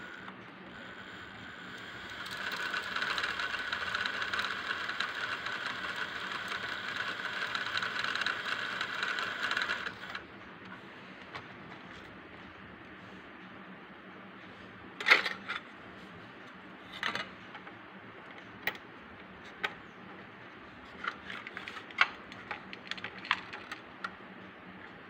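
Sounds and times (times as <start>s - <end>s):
plastic parts clicking and tapping: 21.0s - 24.2s.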